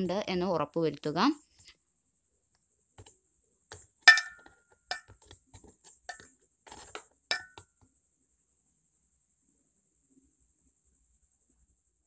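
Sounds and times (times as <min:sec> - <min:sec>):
faint metal taps: 0:03.7 - 0:07.7
metal spoon clinking against pot: 0:04.1 - 0:05.3, 0:06.1 - 0:07.6.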